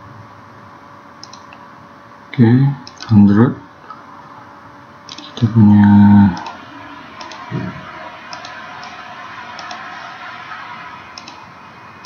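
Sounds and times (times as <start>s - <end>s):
steady low hiss: 0.0s - 12.0s
computer mouse clicking: 1.2s - 1.6s, 2.8s - 3.1s, 9.6s - 9.8s, 11.2s - 11.4s
brief low sound: 5.7s - 12.0s.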